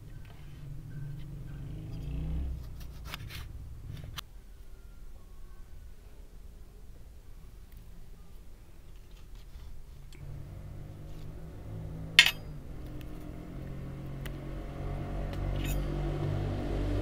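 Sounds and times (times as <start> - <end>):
low steady hum: 0.0 - 17.0
cookware clinking: 12.2 - 12.5.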